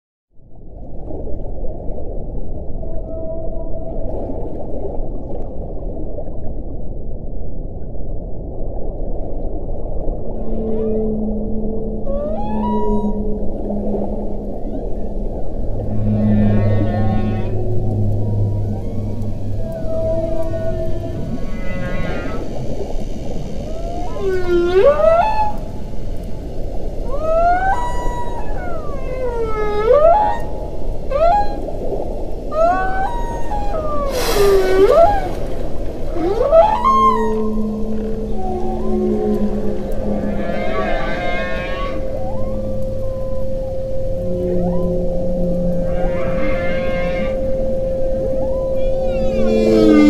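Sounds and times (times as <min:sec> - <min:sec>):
whale song: 0:00.4 - 0:50.0
muffled underwater noise: 0:10.1 - 0:50.0
faint underwater clicks: 0:12.1 - 0:49.5
underwater hiss: 0:18.8 - 0:27.8, 0:33.8 - 0:36.9.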